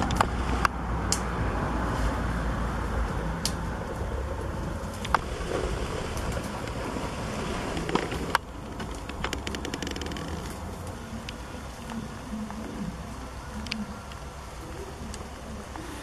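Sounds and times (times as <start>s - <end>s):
sharp clicks and snaps: 0.0s - 1.4s, 3.4s - 3.6s, 7.8s - 12.0s, 13.6s - 14.3s
wind rumbling on microphone: 0.0s - 16.0s.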